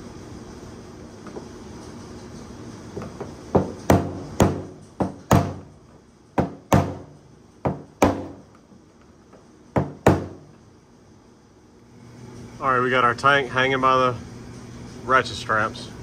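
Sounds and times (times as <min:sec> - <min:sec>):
hammer tapping on metal: 0:06.4 - 0:08.4.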